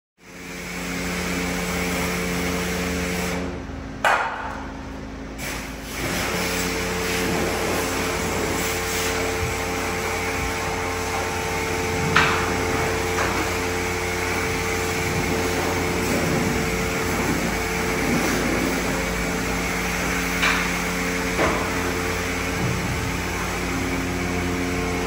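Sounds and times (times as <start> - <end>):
car wash machinery humming: 0.2 - 25.0.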